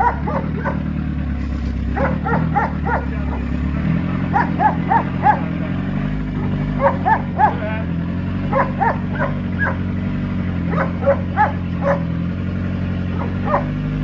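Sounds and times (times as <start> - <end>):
dog barking: 0.0 - 0.9, 1.9 - 3.5, 4.3 - 5.6, 6.4 - 7.7, 8.5 - 9.9, 10.7 - 12.2, 13.1 - 13.8
car engine droning: 0.0 - 14.0.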